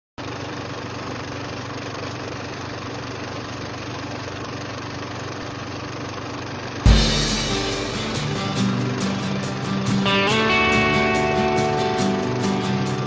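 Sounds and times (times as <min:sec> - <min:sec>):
film projector whirring: 0:00.2 - 0:06.9.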